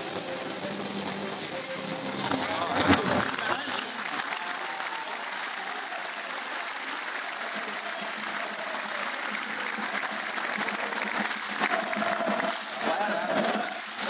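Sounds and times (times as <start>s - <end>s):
crowd applauding: 0.0s - 14.0s.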